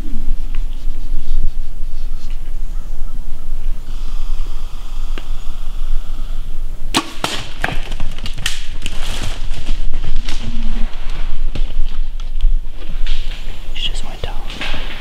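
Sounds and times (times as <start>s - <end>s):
bow snapping: 6.9s - 7.5s
deer crashing through brush: 7.0s - 13.7s.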